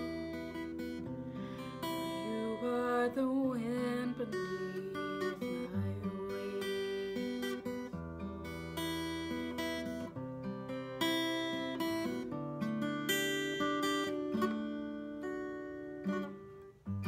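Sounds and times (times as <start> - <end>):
acoustic guitar strumming: 0.0 - 17.0
woman singing: 1.8 - 7.8.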